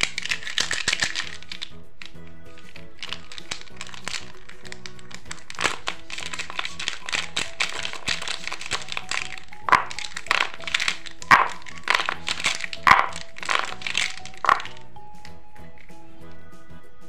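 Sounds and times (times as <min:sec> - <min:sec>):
plastic marker pens clattering: 0:00.0 - 0:16.0
soft background music: 0:00.0 - 0:17.0
pens knocking on table: 0:03.0 - 0:14.8.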